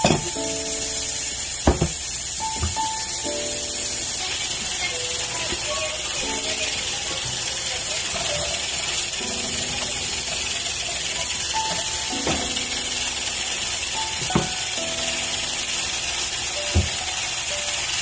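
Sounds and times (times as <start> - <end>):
steam hissing: 0.0 - 18.0
vegetables sizzling in a frying pan: 0.0 - 18.0
spatula knocking on pan: 1.6 - 2.0, 12.2 - 12.7.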